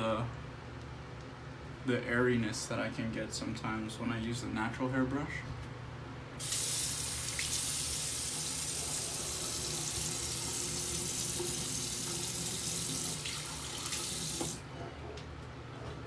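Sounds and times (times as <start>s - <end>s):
sink tap running: 6.4s - 14.6s.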